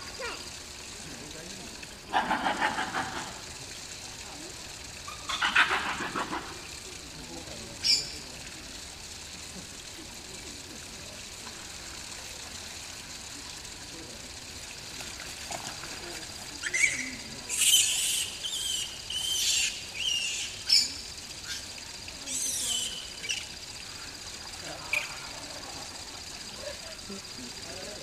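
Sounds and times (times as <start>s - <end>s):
faint outdoor hiss: 0.0s - 28.0s
bird squawking: 16.6s - 21.7s.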